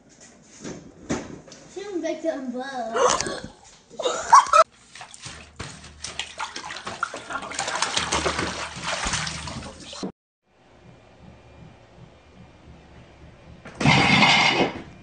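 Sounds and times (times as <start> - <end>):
water splashing in bathtub: 4.3 - 10.1.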